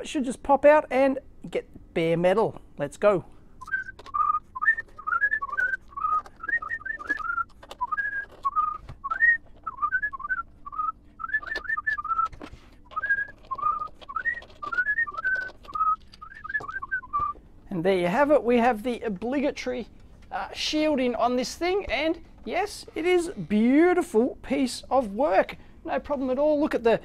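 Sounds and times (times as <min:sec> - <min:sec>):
man whistling a tune: 0:03.6 - 0:17.4.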